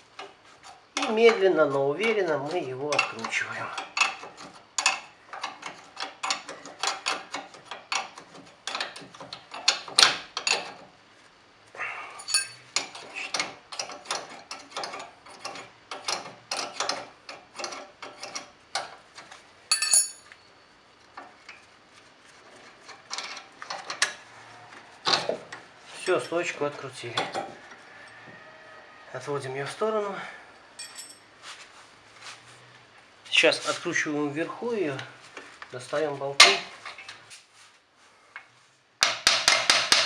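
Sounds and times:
spanner clicking on metal nut: 2.9 - 10.8, 12.3 - 20.2.

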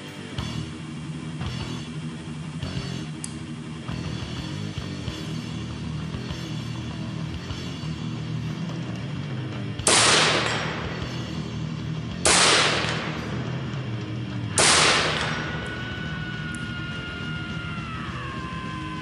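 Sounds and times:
rifle shots: 9.8 - 11.2, 12.2 - 13.7, 14.5 - 15.8.

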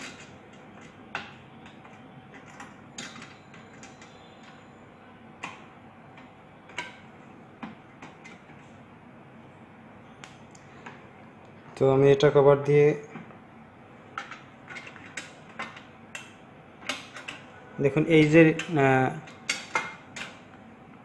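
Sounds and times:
metal parts clicking and tapping: 0.0 - 4.6, 14.2 - 17.5, 18.2 - 20.4.

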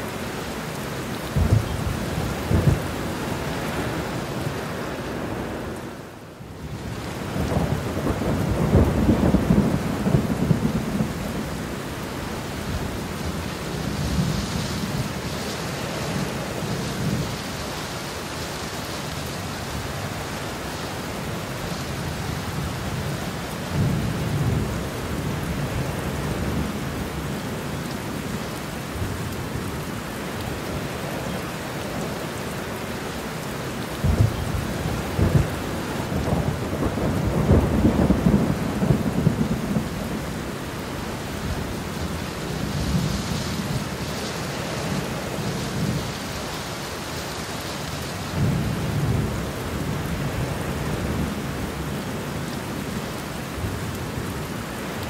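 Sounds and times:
heavy rain: 0.0 - 55.0
thunder rumbling: 1.3 - 4.1, 6.8 - 11.5, 34.0 - 40.5.

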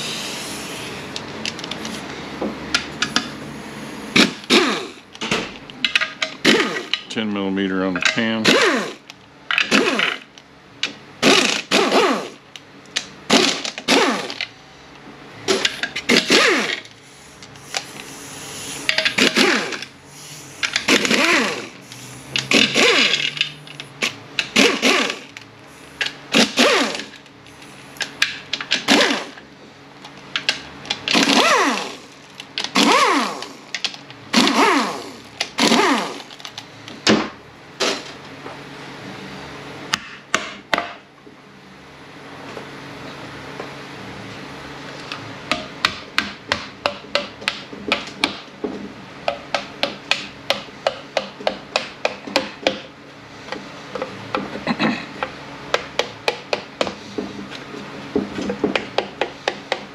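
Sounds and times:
power tool motor bursts: 3.8 - 5.0, 6.4 - 7.0, 8.4 - 10.3, 11.2 - 12.4, 13.3 - 14.5, 15.5 - 23.6, 24.4 - 27.7, 28.8 - 29.4, 31.0 - 33.7, 34.3 - 36.4.

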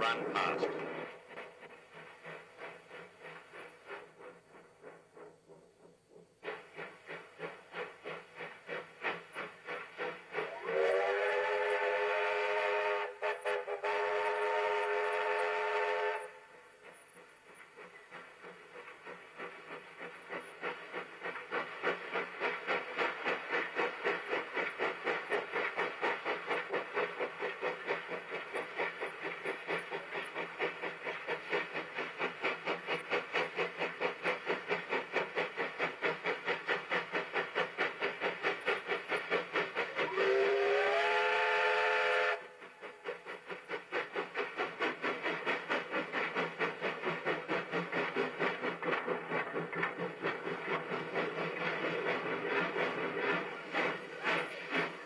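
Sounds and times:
steam locomotive exhaust chuffing: 0.0 - 55.0
steam whistle chord: 40.1 - 42.5.

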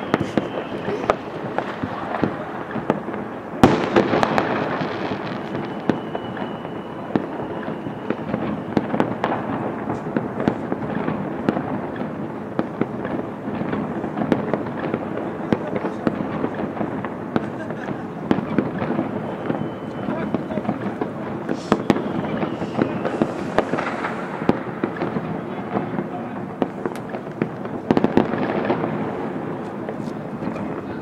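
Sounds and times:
high firework whistle: 0.0 - 10.8, 17.3 - 25.2
firecrackers banging and crackling: 0.0 - 31.0
loud firework bang: 0.0 - 31.0.

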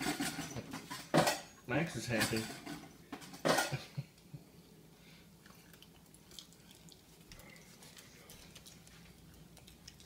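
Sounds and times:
dog chewing popcorn: 5.5 - 10.0.

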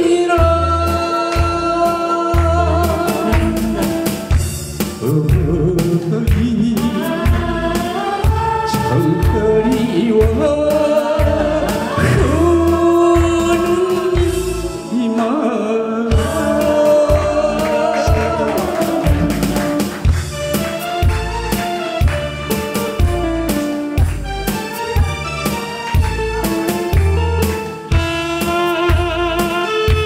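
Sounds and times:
man singing into microphone: 0.0 - 4.3, 5.0 - 7.9, 8.6 - 19.8
amplified backing music: 0.0 - 30.0.

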